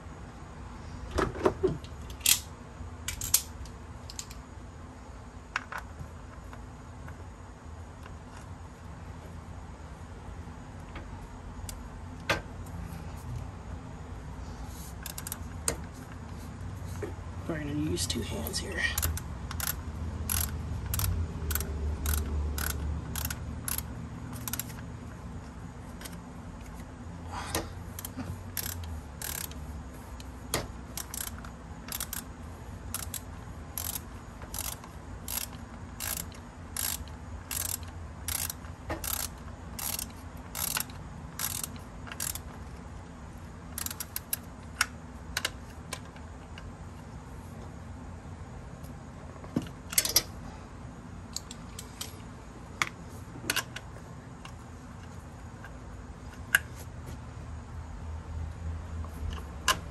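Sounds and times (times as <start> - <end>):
ratchet clicking: 15.0 - 15.5, 19.0 - 24.9, 27.9 - 32.3, 32.9 - 42.6, 43.8 - 45.5.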